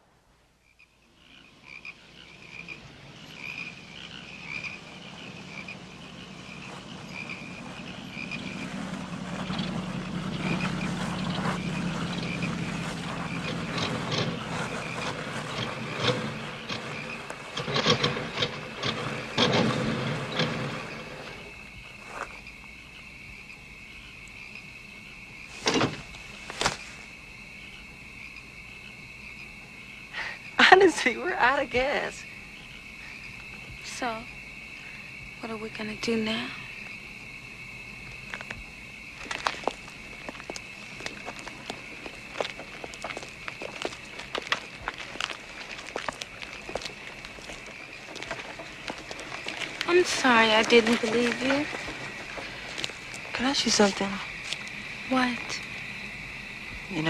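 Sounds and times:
crickets chirping: 0:00.0 - 0:57.0
frogs calling: 0:00.0 - 0:57.0
car engine sputtering: 0:02.4 - 0:21.8, 0:39.1 - 0:56.6.

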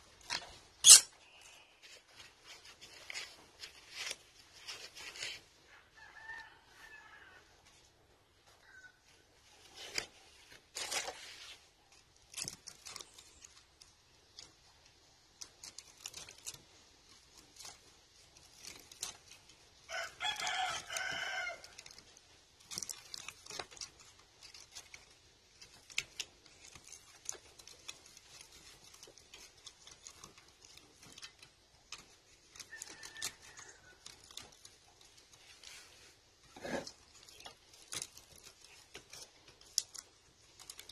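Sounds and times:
rooster crowing: 0:05.8 - 0:07.5, 0:19.9 - 0:21.8, 0:32.7 - 0:34.2.

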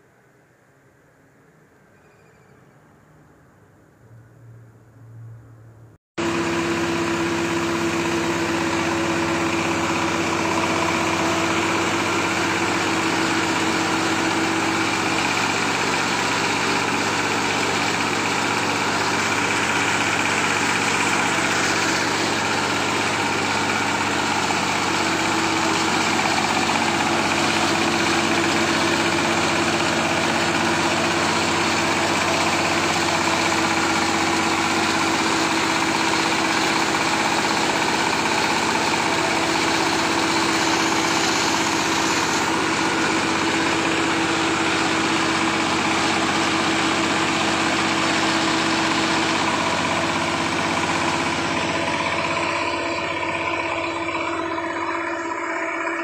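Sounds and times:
diesel engine hum: 0:03.0 - 0:56.0
rice mill grinding: 0:06.2 - 0:52.4.

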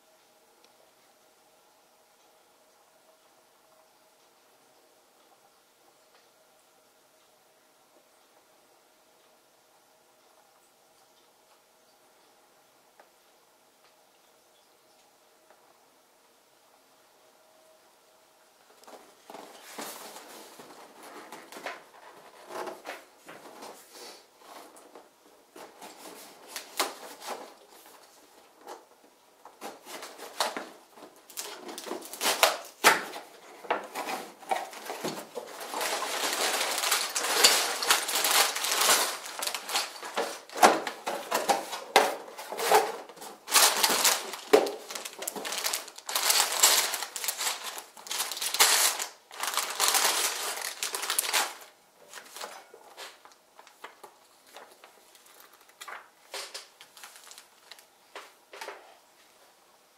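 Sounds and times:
plastic bags crinkling: 0:29.5 - 0:58.0
plastic toy bricks clattering: 0:34.6 - 0:41.7.

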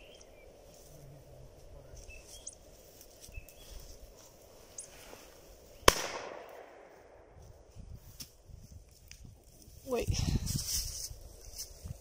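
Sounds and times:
shotgun shot: 0:05.8 - 0:06.9.

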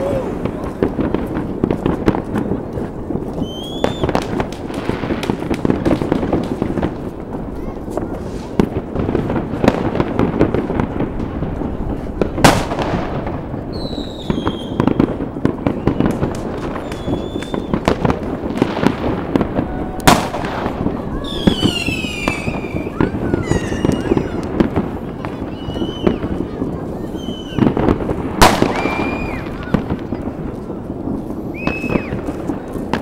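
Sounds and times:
fireworks banging and crackling: 0:00.0 - 0:33.0
loud firework bangs: 0:00.0 - 0:33.0
whistling rockets falling in pitch: 0:03.4 - 0:04.5, 0:13.7 - 0:30.0, 0:31.4 - 0:33.0.

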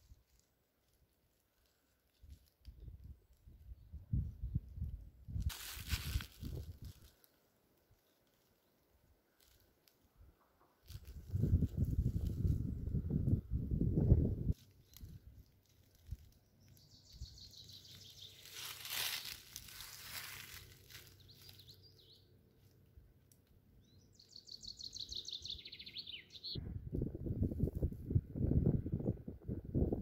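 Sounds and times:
songbird singing: 0:14.6 - 0:26.6.

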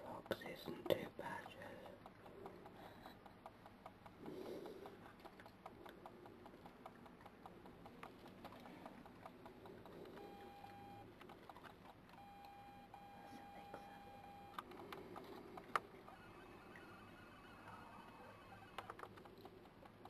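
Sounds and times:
badger chewing food: 0:00.0 - 0:12.2, 0:14.6 - 0:20.0
short steady beep: 0:10.2 - 0:11.0, 0:12.2 - 0:14.6.

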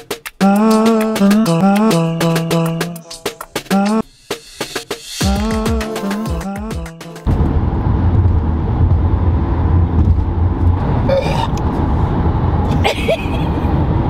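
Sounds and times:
road and engine rumble in car: 0:07.3 - 0:14.0.

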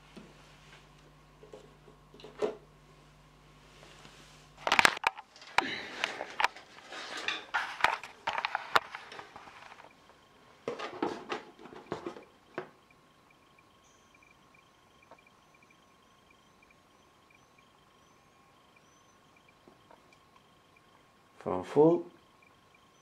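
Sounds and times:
rustling and scraping: 0:00.0 - 0:12.7
low hum: 0:00.0 - 0:23.0.

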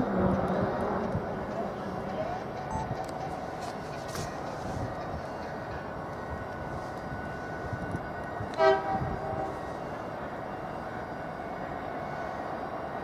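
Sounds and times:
train rumbling: 0:00.0 - 0:13.0
locomotive horn toot: 0:08.5 - 0:09.6.

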